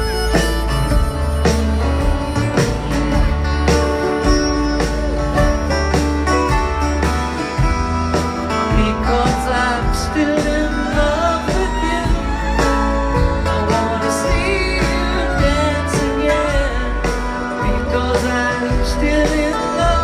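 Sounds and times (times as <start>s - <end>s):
live country-folk band playing: 0.0s - 20.0s.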